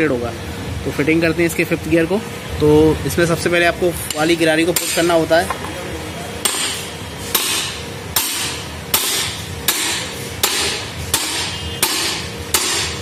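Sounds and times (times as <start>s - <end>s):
hammer striking metal gear: 6.4s - 13.0s.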